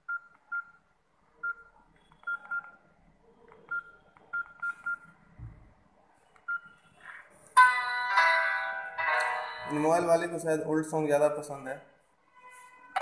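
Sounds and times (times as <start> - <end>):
phone key beeps: 0.1 - 0.8, 1.4 - 2.8, 3.6 - 5.1.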